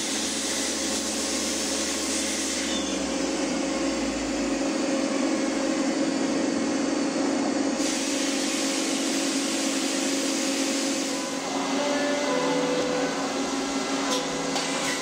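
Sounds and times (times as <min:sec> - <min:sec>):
lathe mechanical hum and whine: 0:00.0 - 0:15.0
hiss: 0:07.8 - 0:11.2.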